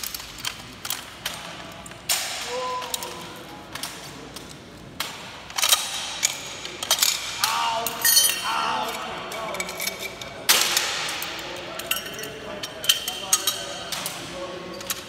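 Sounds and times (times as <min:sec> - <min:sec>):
metal gun parts clicking: 0:05.5 - 0:11.0.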